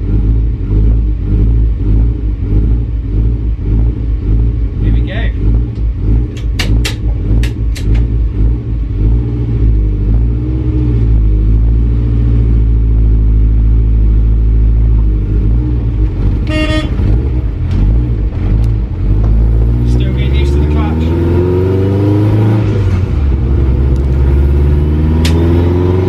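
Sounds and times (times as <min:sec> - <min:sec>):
van engine revving: 0:00.0 - 0:26.0
short horn toot: 0:16.4 - 0:17.2.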